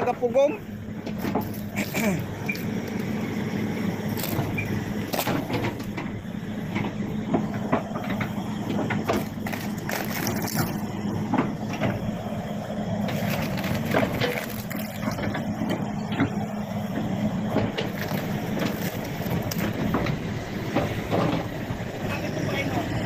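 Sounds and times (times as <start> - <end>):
excavator diesel engine running: 0.0 - 23.0
wood cracking and knocking: 1.1 - 3.1, 4.1 - 12.0, 13.1 - 16.4, 17.5 - 21.5.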